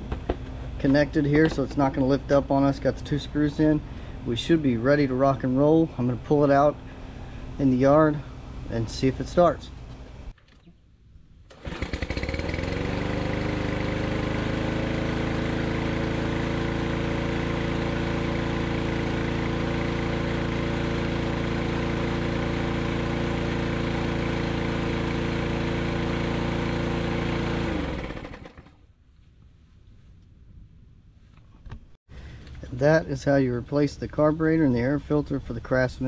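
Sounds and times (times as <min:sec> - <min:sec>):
lawn mower engine running: 0:11.5 - 0:28.8.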